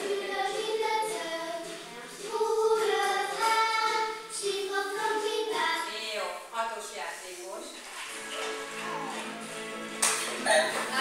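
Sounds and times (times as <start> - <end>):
children singing: 0.0 - 5.9.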